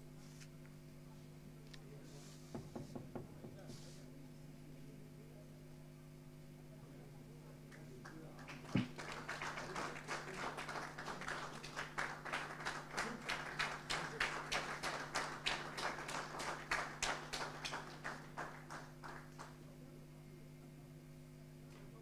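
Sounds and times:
small group clapping: 7.7s - 19.8s.

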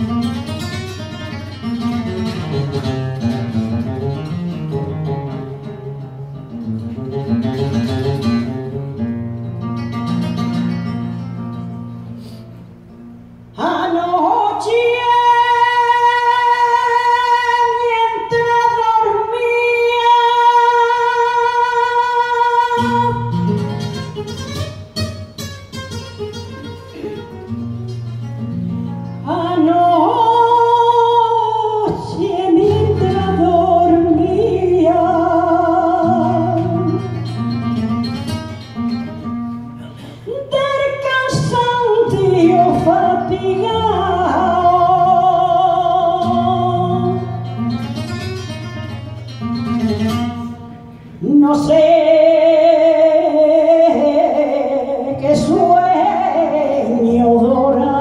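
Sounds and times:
flamenco guitar: 0.0s - 58.0s
woman singing: 13.6s - 24.0s, 29.2s - 37.8s, 40.2s - 47.7s, 51.2s - 58.0s.

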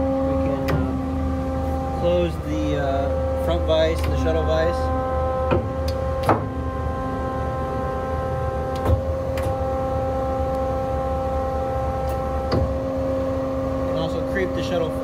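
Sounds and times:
hydraulic unit whining: 0.0s - 15.0s
vise clunks: 0.4s - 1.1s, 3.7s - 6.8s, 8.7s - 9.8s, 12.0s - 13.0s.

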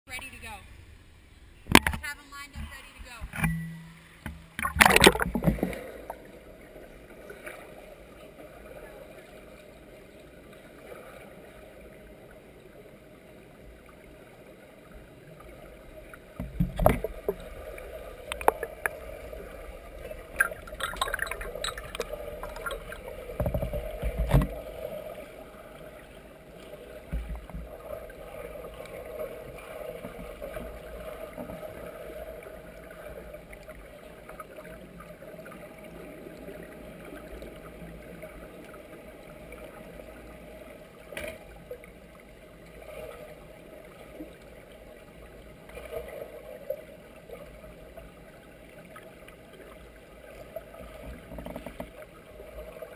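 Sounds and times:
swimmer thumps and splashes: 4.3s - 6.0s.

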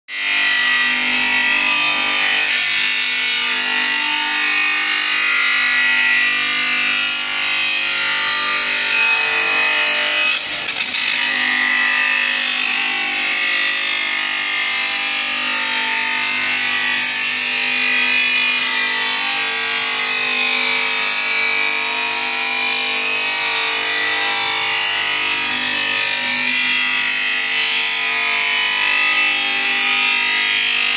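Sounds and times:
glass edging machine grinding: 7.1s - 13.8s.

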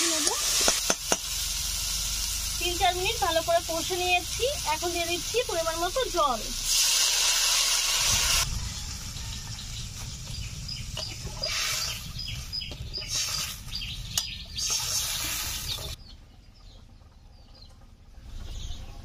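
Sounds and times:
pan sizzling: 0.0s - 13.7s
water hissing in hot pan: 0.0s - 13.7s, 14.6s - 16.0s
low rumble: 8.1s - 13.0s
birds chirping: 8.4s - 19.0s.

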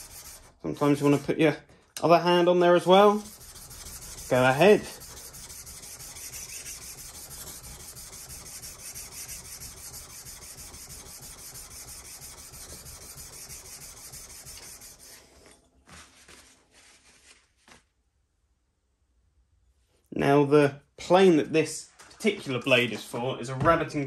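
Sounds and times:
blade grinding on sharpening plate: 3.2s - 15.1s.

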